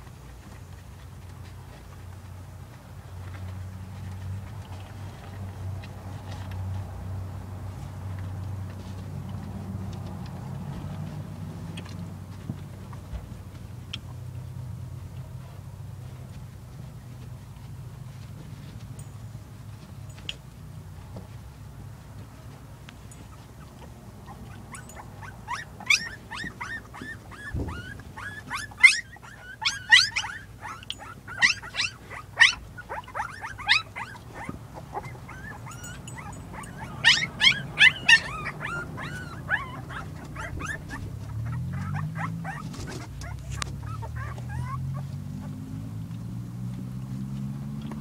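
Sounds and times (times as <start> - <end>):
puppies squealing and whimpering: 23.2 - 45.7.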